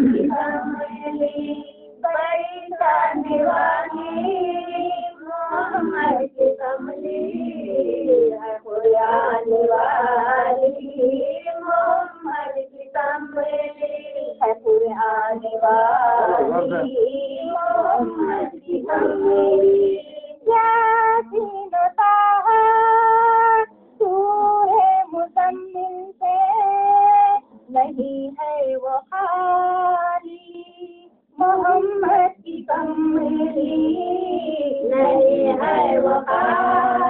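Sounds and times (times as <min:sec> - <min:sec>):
high solo voice singing: 0:16.0 - 0:21.4.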